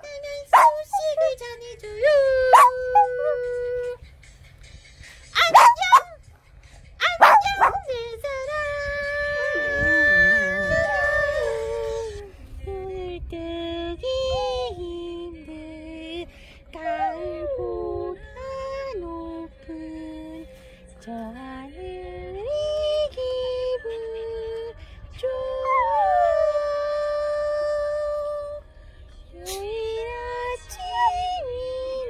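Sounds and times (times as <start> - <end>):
dog howling: 0.5 - 1.4, 2.5 - 3.6, 7.1 - 7.9, 9.4 - 12.1, 16.7 - 17.8, 25.6 - 27.0
song playing: 2.6 - 8.2.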